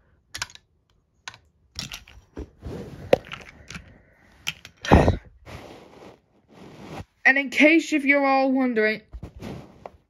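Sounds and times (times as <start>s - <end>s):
short rustling: 5.4s - 7.2s, 9.2s - 10.0s.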